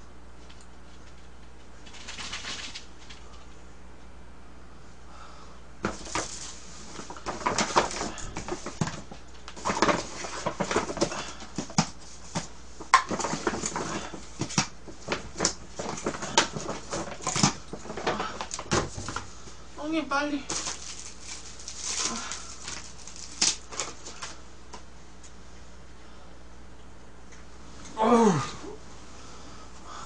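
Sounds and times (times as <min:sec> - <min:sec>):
paper bag rustling: 0:05.9 - 0:11.4, 0:20.4 - 0:24.4.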